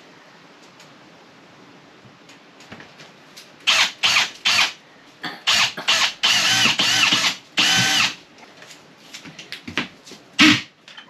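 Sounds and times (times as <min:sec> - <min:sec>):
power drill bursts: 0:03.7 - 0:04.8, 0:05.5 - 0:08.2, 0:10.4 - 0:10.7.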